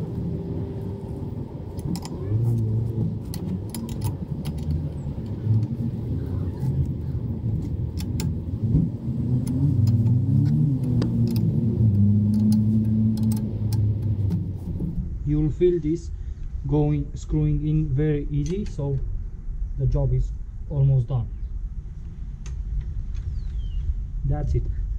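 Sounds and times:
engine running: 0:00.0 - 0:18.4.

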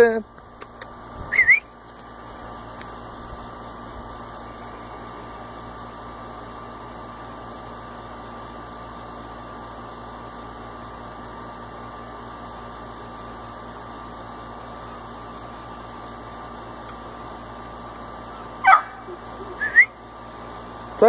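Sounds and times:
background hum and hiss: 0:00.0 - 0:21.0
faint constant high tone: 0:14.7 - 0:16.1, 0:18.3 - 0:20.0.

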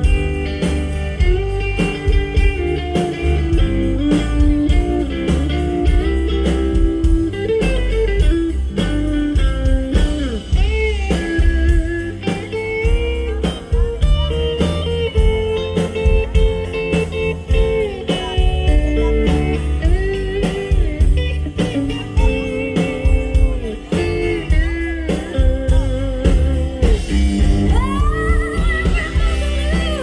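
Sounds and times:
blues-rock band playing: 0:00.0 - 0:30.0
person singing: 0:17.5 - 0:30.0.

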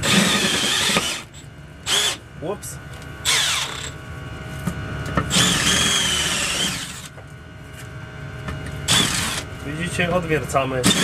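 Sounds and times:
cordless drill drilling rivets: 0:00.0 - 0:02.2, 0:05.3 - 0:07.1, 0:08.9 - 0:09.5.

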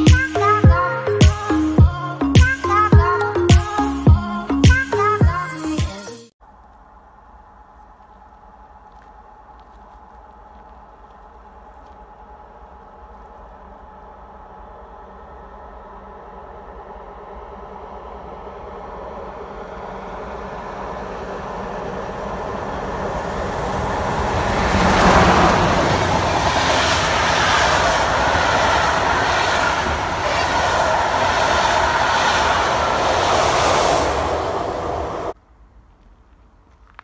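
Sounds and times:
train wheels rushing on rail: 0:07.2 - 0:35.4
clicking over rail joints: 0:35.9 - 0:37.0.

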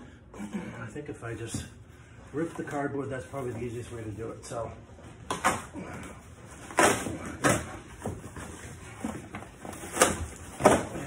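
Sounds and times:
cardboard rustling: 0:06.4 - 0:11.0.

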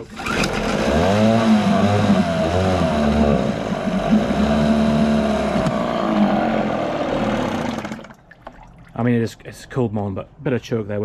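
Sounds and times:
outboard motor revving: 0:00.0 - 0:08.3.

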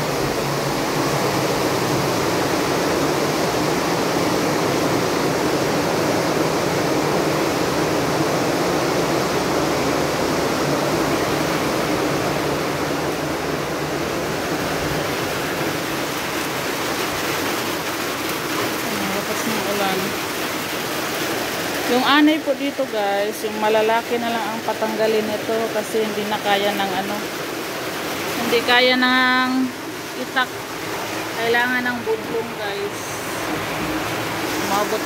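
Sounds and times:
heavy rain falling: 0:00.0 - 0:35.0.

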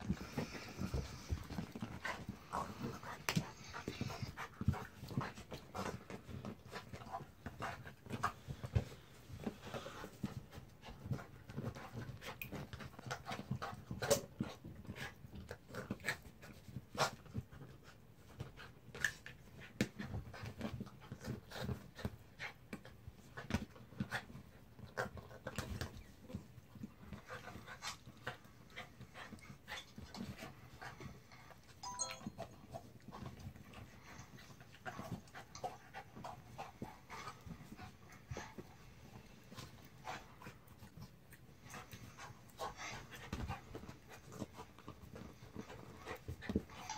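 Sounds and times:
dog panting: 0:00.0 - 0:31.9, 0:32.8 - 0:46.9.

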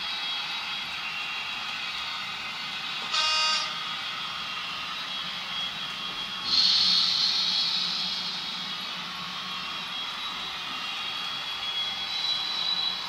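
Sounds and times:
faint high whining tones: 0:02.9 - 0:13.0
short horn-like tone: 0:03.1 - 0:03.8
louder hiss: 0:06.5 - 0:08.8.

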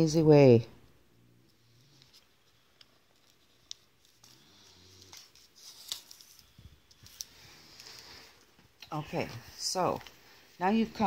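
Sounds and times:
soft paper rustling: 0:01.5 - 0:11.0.

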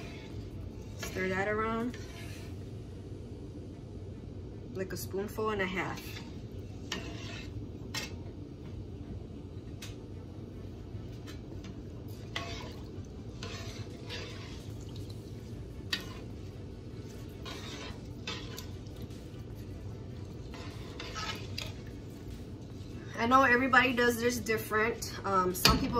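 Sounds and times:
steady low hum: 0:00.0 - 0:25.9
spoon stirring rice in water: 0:11.2 - 0:23.1
water swishing: 0:12.1 - 0:23.2.

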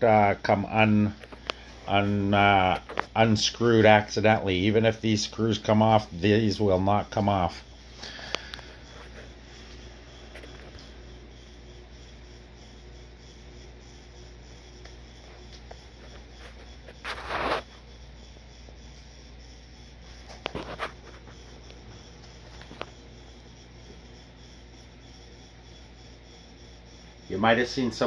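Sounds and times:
rubbing scrape: 0:15.9 - 0:17.8, 0:20.1 - 0:21.5.

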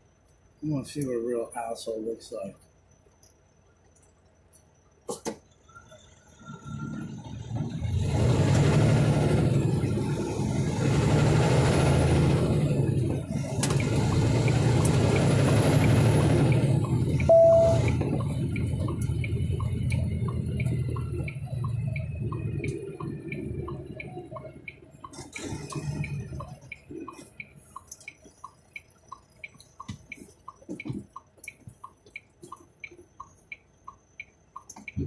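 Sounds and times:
truck diesel engine under load: 0:05.6 - 0:31.1
short beep: 0:17.2 - 0:18.0.

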